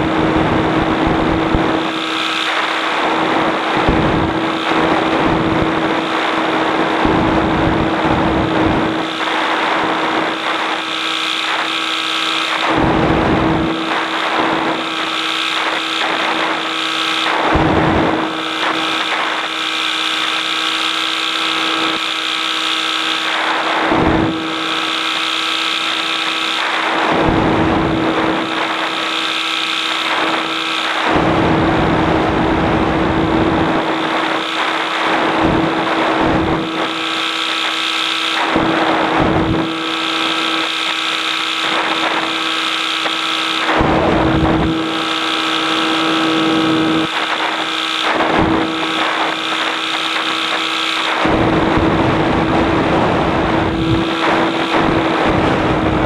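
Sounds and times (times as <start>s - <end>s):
wind gusts over microphone: 51.2s - 56.0s.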